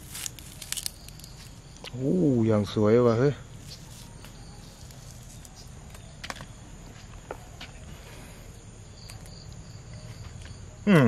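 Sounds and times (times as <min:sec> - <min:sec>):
bamboo tube cracking: 0:00.0 - 0:02.0
faint insect chirping: 0:00.0 - 0:11.0.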